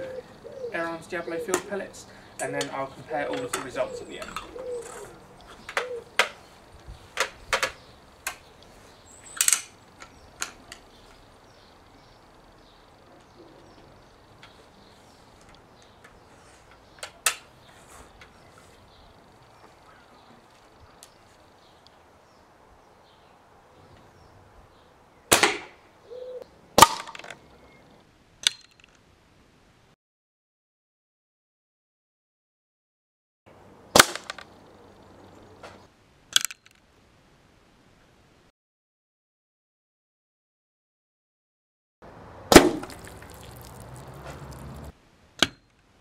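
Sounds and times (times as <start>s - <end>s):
outdoor background: 0.0s - 30.0s, 33.5s - 38.5s, 42.0s - 46.0s
air rifle shot cracking: 25.3s - 25.8s, 33.9s - 34.5s, 42.5s - 43.1s
pellet hitting water jugs: 42.5s - 44.8s.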